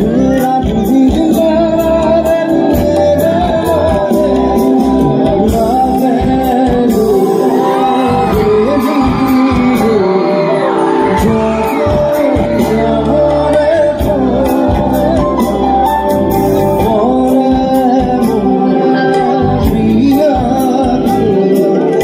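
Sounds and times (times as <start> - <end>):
live band playing: 0.0 - 22.0
man singing: 0.0 - 22.0
crowd shouting: 7.5 - 13.8.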